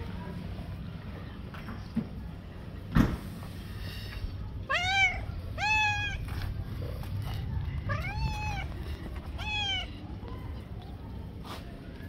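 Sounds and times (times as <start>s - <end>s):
cat meowing: 4.7s - 6.3s, 7.9s - 8.7s, 9.4s - 9.9s.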